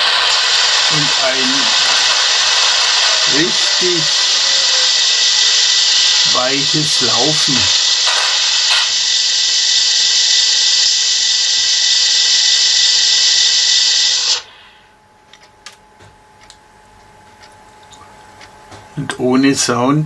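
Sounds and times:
locomotive sound hiss from speaker: 0.0 - 14.9.

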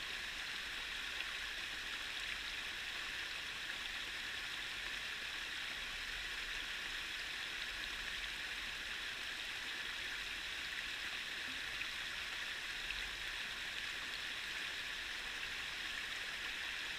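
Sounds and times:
stream running over rocks: 0.0 - 16.9.

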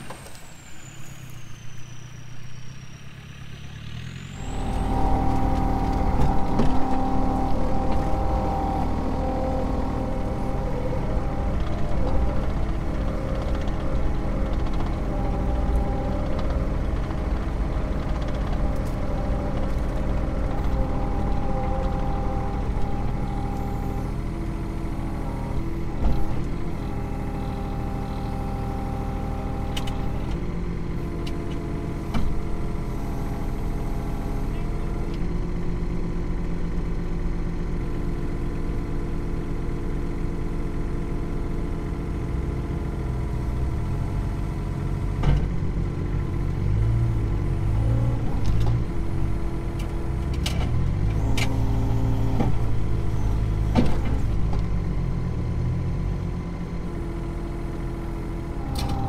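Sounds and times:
excavator diesel engine running: 0.0 - 59.0
hydraulic whine: 4.2 - 34.4.

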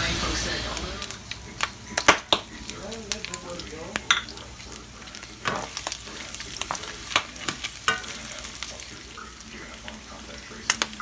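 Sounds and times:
meat sizzling in a frying pan: 0.0 - 11.0
metal spoon scraping a pan: 5.4 - 9.8.

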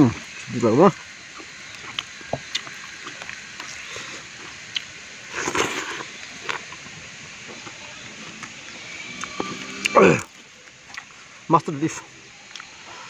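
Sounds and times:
wet rice squishing: 0.0 - 6.9
slurping and chewing: 1.2 - 11.2, 12.4 - 13.0.

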